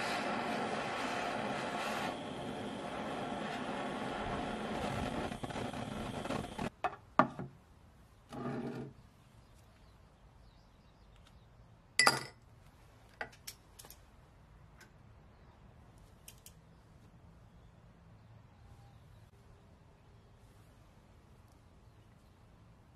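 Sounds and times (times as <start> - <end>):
torch flame hissing: 0.0 - 6.7.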